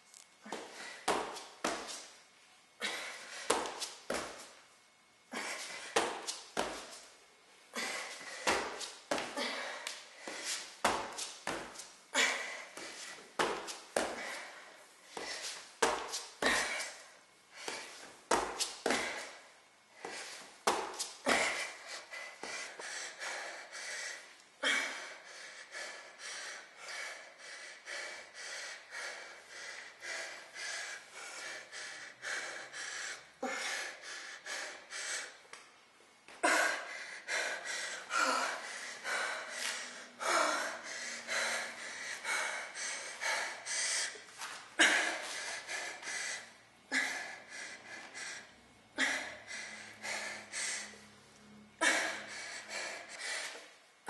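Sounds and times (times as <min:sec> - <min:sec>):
woman breathing hard: 0:00.4 - 0:35.6, 0:36.3 - 0:53.8.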